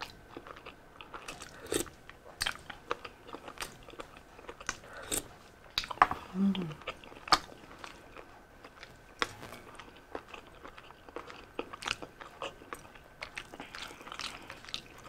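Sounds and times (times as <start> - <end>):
person chewing food: 0.0 - 15.0.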